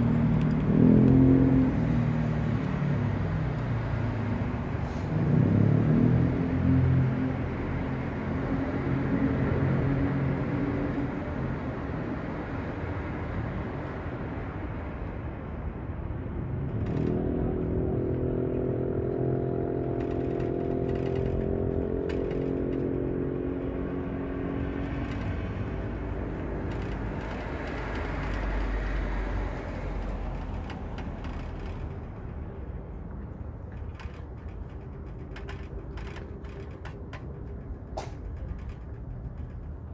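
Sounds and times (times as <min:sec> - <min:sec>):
traffic noise: 0:00.0 - 0:39.9
vehicle engine running: 0:16.2 - 0:39.9.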